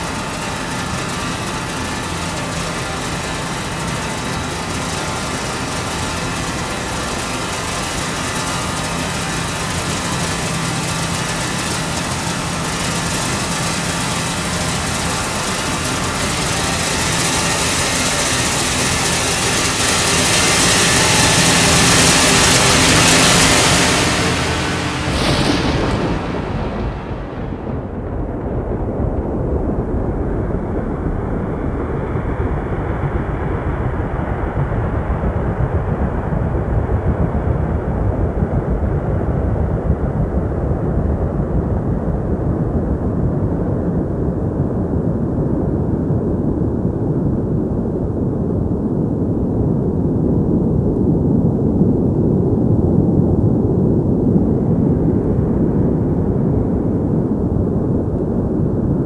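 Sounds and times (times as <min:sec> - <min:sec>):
tornado wind roaring: 0:00.0 - 0:59.0.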